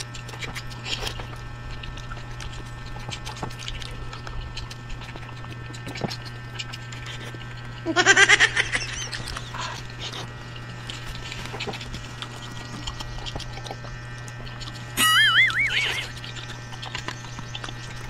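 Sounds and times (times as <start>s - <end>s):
steady low hum: 0.0s - 18.0s
loud warbling cry: 15.0s - 16.3s.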